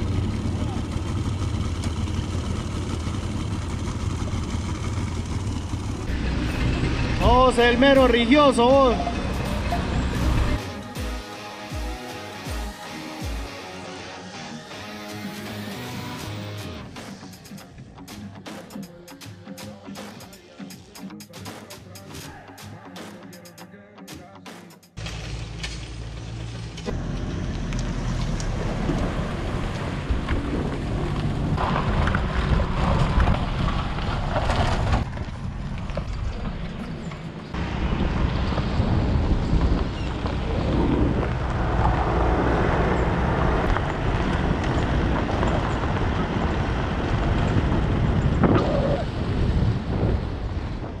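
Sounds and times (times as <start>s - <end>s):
tyres rumbling on dirt road: 0.0s - 11.2s, 25.0s - 51.0s
wind buffeting microphone: 29.3s - 51.0s.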